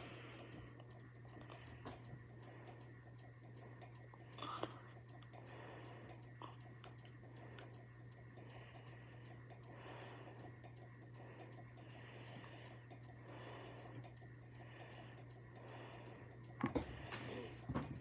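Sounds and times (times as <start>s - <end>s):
steady low hum: 0.0s - 18.0s
breathing through the nose: 3.6s - 6.3s, 8.4s - 17.8s.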